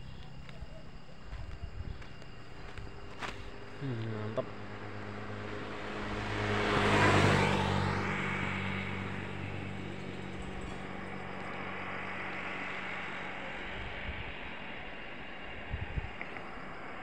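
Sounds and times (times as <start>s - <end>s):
low hum: 0.0s - 17.0s
vehicle passing by: 3.5s - 14.4s.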